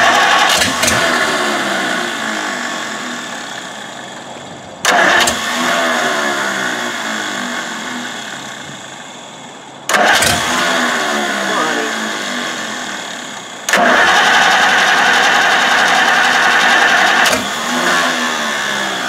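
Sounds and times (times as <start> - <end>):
starter motor cranking engine: 0.0 - 9.1, 9.8 - 19.0.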